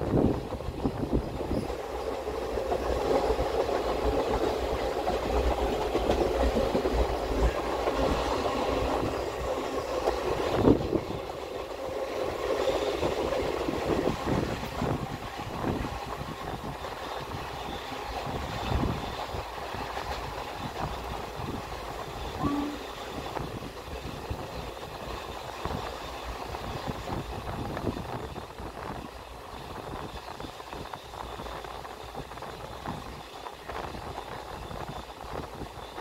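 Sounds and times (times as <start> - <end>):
train coaches rumbling: 0.0 - 36.0
wheels clacking over rail joints: 1.2 - 22.9.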